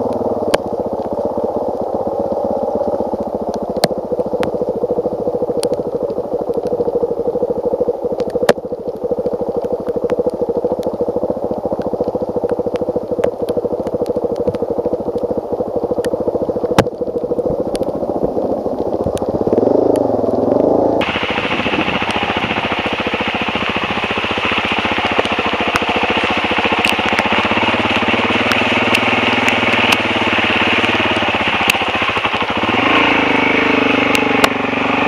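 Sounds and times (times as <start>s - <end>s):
motorcycle engine running: 0.0s - 35.0s
sharp clicks: 5.6s - 6.9s, 8.2s - 15.3s.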